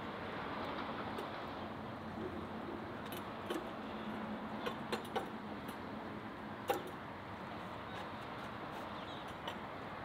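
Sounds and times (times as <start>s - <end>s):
outdoor background hiss: 0.0s - 10.0s
metal stand clicks and knocks: 4.6s - 5.8s, 6.6s - 7.0s.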